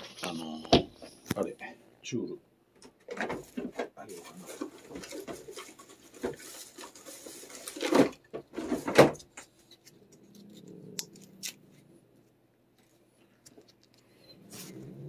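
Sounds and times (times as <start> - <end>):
rustling: 3.4 - 15.0.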